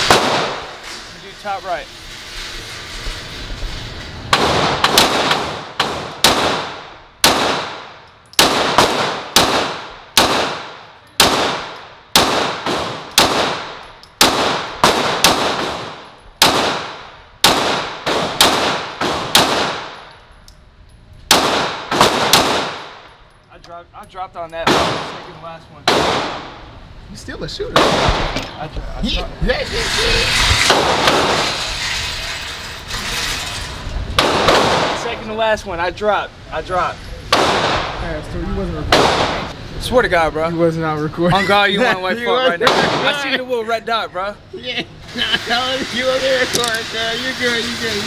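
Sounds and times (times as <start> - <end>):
pistol shots with echo: 0.0 - 0.7, 4.4 - 20.0, 21.3 - 23.1, 24.7 - 26.6, 27.8 - 28.4, 37.3 - 38.0, 38.9 - 39.5, 42.6 - 43.1.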